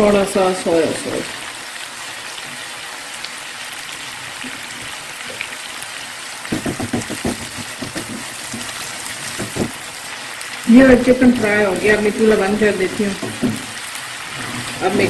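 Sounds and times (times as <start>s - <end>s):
chicken sizzling in oil: 0.0s - 15.0s
spatula scraping pan: 6.7s - 9.8s, 11.2s - 15.0s.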